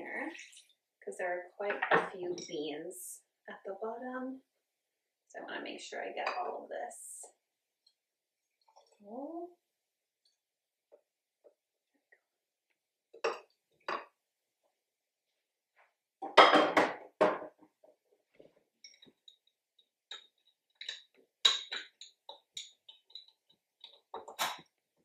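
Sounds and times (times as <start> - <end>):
glass knocking and clinking: 13.2 - 14.2, 16.2 - 17.6, 20.1 - 24.7.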